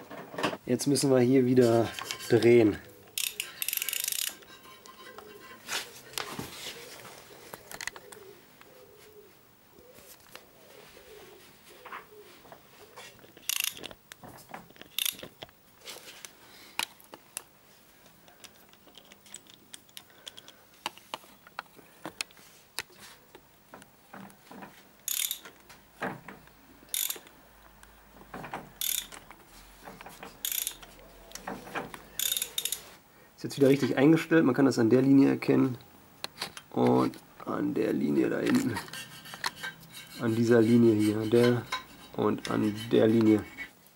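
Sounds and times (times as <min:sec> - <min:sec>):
socket ratchet clicking: 0:03.1 - 0:04.4, 0:13.4 - 0:13.9, 0:14.9 - 0:15.3, 0:25.1 - 0:25.5, 0:26.9 - 0:27.3, 0:28.8 - 0:29.2, 0:30.4 - 0:31.4, 0:32.2 - 0:32.8.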